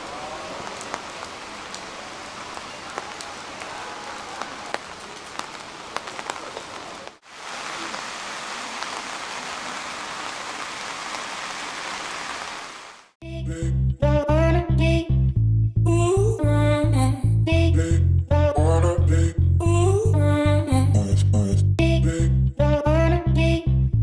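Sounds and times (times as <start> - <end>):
heavy rain hiss: 0.0 - 13.2
raindrops pattering close by: 0.0 - 13.2
music: 13.2 - 24.0.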